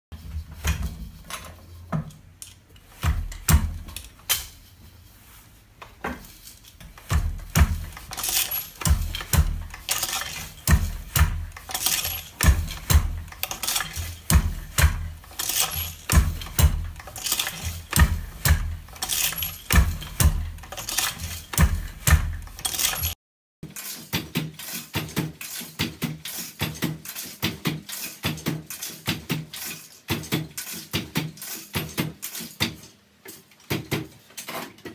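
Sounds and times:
wooden loom clacks and knocks: 0.2 - 4.6, 5.8 - 34.9
low thuds from treadles: 6.8 - 22.6.

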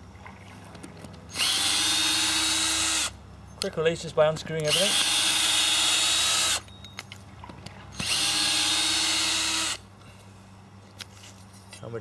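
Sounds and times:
cordless drill running in reverse: 1.3 - 3.1, 4.7 - 6.6, 8.0 - 9.8.

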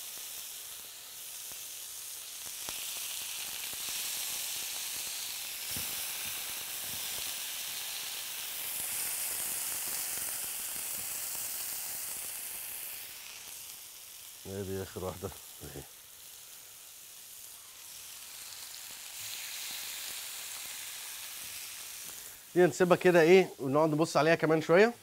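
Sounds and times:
chicken sizzling on a grill: 0.0 - 25.0.

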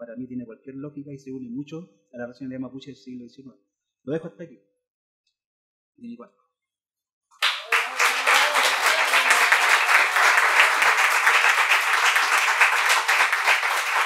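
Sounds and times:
audience applauding: 7.4 - 14.0.

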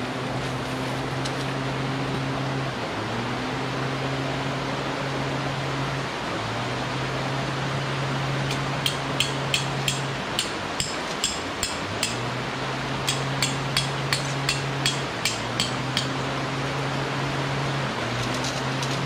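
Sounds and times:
hammer striking metal tent pegs: 8.5 - 12.3, 13.0 - 16.2.

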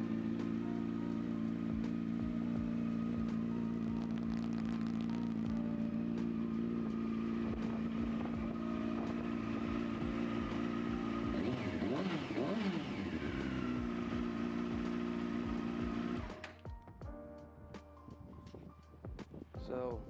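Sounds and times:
motorcycle engine idling and revving: 0.0 - 16.8.

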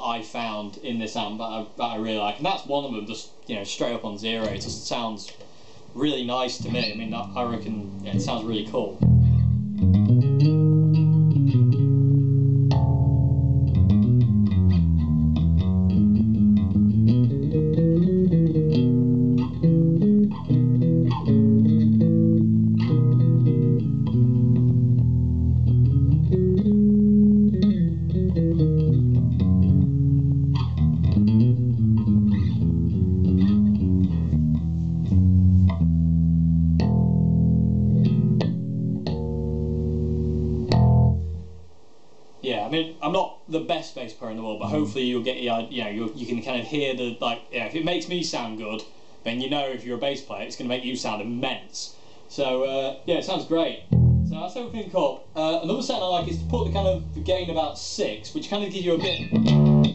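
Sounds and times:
plucked bass guitar line: 6.6 - 41.6, 53.9 - 54.8, 56.0 - 57.7, 59.0 - 59.9.

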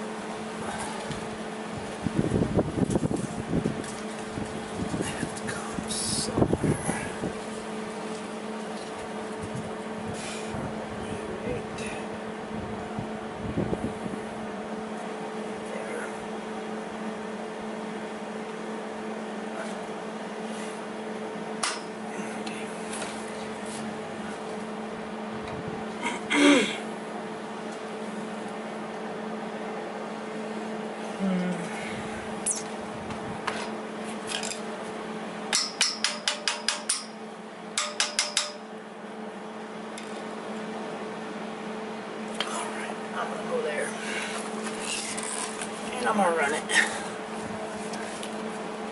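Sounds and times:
steady machine hum: 0.0 - 48.9
hammer striking metal: 35.5 - 37.2, 37.8 - 38.7.

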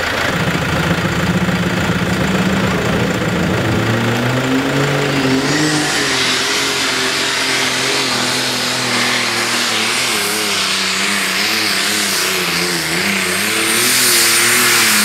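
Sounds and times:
tractor engine running: 0.0 - 15.0
hiss: 4.6 - 15.0.

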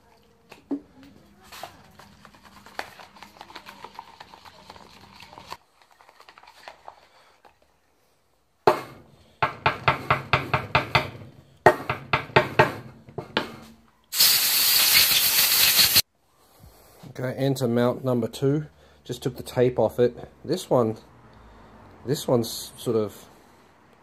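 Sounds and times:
loud steady hiss: 14.1 - 16.0.

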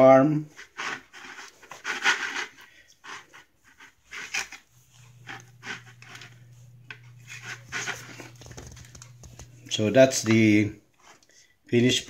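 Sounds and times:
knife sawing through bread: 0.5 - 4.6
low steady hum: 3.6 - 12.0.

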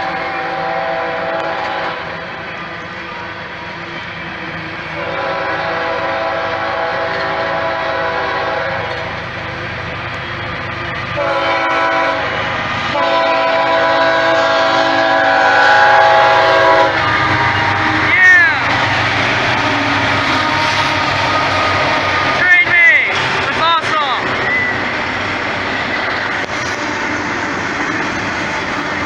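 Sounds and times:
locomotive air horn blasts: 0.0 - 2.1, 5.0 - 9.0, 11.2 - 17.8, 19.5 - 22.2
hopper cars rumbling and clacking: 8.3 - 11.3, 16.9 - 29.0.

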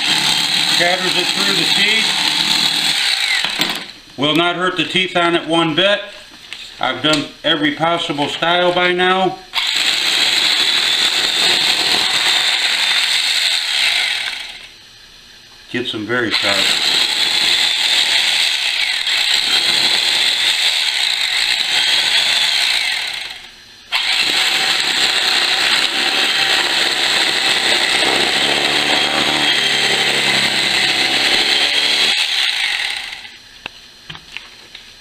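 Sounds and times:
electric knife sawing paper: 0.0 - 3.5, 9.6 - 14.7, 16.3 - 33.4.

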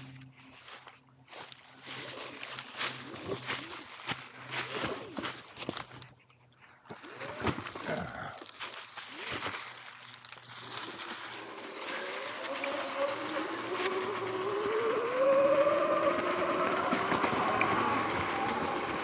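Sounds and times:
tyres hissing on dry leaves: 0.6 - 5.5, 7.1 - 19.0
electric motor whine: 9.9 - 19.0.

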